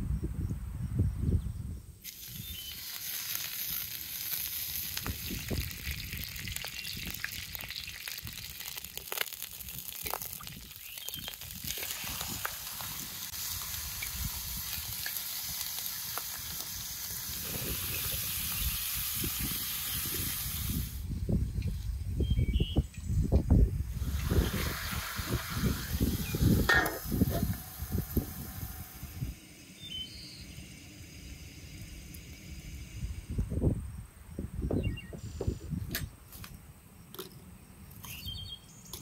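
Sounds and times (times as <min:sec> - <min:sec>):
chicken sizzling in a wok: 0:02.1 - 0:21.1, 0:23.9 - 0:33.3.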